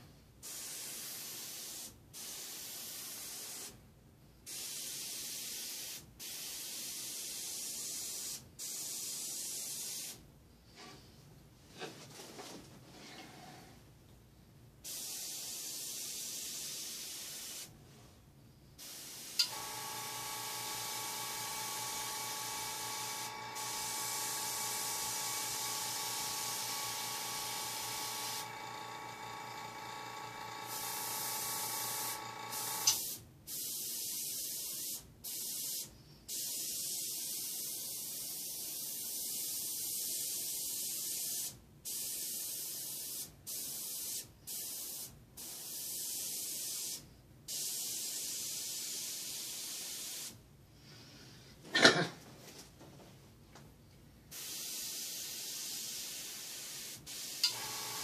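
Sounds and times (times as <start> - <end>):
air compressor hum: 18.8 - 33.2, 57.1 - 58.0
airbrush hissing: 18.8 - 36.9, 54.4 - 58.0.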